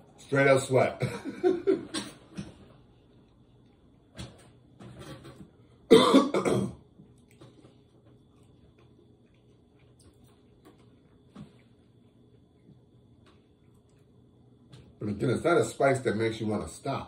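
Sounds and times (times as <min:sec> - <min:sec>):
man coughing: 0:01.0 - 0:02.5, 0:05.9 - 0:06.8.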